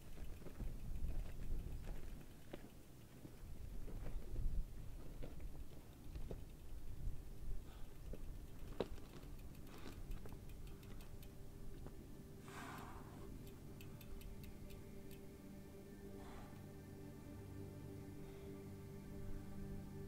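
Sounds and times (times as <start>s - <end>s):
light clicks and ticks: 0.0s - 15.7s
low sustained music tones: 0.0s - 20.0s.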